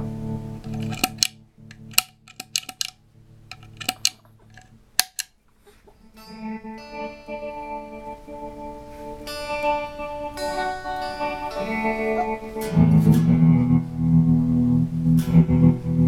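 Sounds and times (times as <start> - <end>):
guitar chopped by tremolo pedal: 6.2 - 16.0
sustained guitar chord: 6.2 - 16.0.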